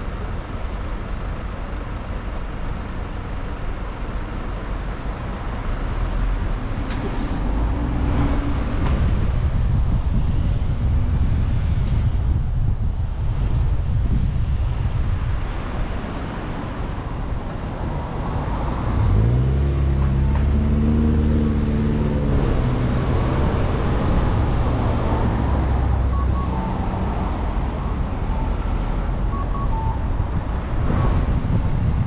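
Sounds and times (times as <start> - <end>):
road and wind rumble: 0.0 - 32.0
faint short beeps: 26.1 - 26.8, 29.3 - 30.1.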